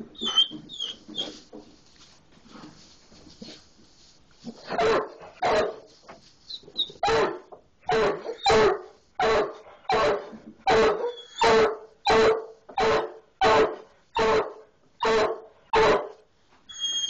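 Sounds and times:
dog barking: 4.7 - 5.8, 7.0 - 16.2.

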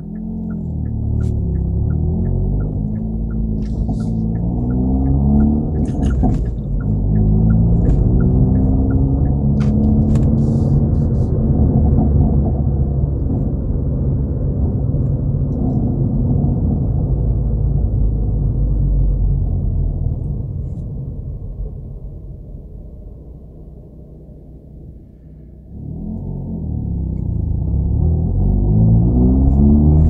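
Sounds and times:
light regular ticking: 0.0 - 11.2
car engine and exhaust: 0.0 - 30.0.

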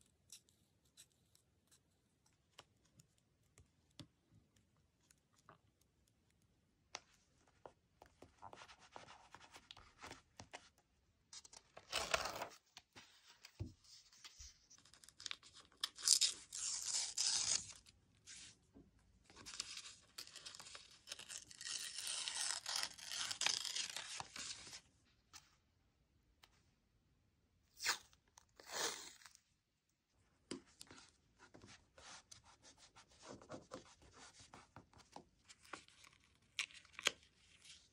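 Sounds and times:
paper tearing: 15.9 - 17.8, 21.1 - 24.7.

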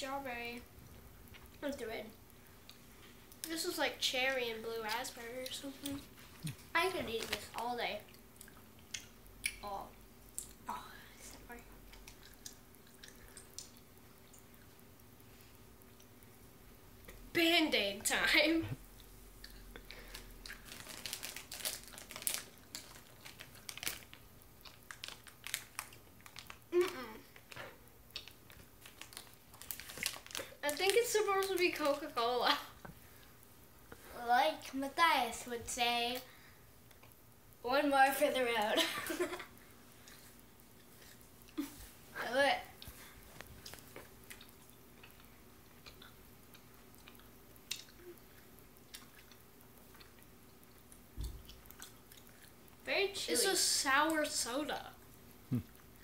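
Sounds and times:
candy bag crinkling: 6.8 - 7.7, 19.9 - 32.2
wet chewing of gummy candy: 8.0 - 9.6, 11.9 - 14.8, 19.0 - 30.6, 40.0 - 41.8, 42.8 - 52.8.

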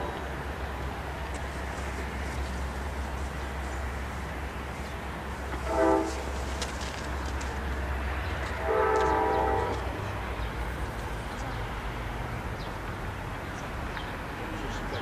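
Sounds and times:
distant train horn: 0.0 - 0.3, 5.5 - 6.4, 8.5 - 10.0.

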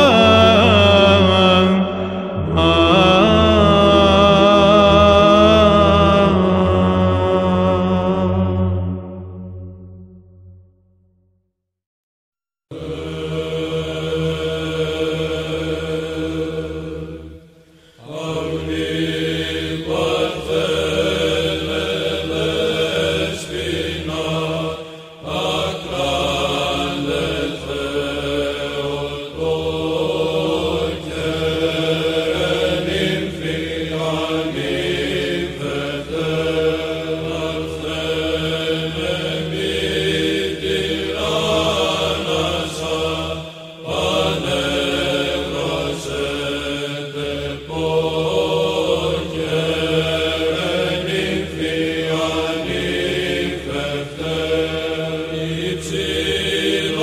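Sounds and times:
held vocal drone: 0.0 - 9.9, 12.7 - 57.0
chanted sung line: 0.0 - 10.2, 12.7 - 57.0.

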